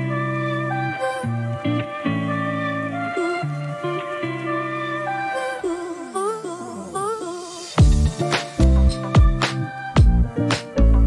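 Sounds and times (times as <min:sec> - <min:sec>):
background music with beat: 0:00.0 - 0:11.0.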